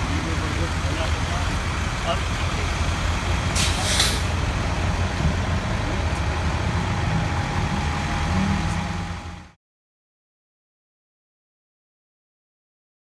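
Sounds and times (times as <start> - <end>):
vehicle engine idling: 0.0 - 9.6.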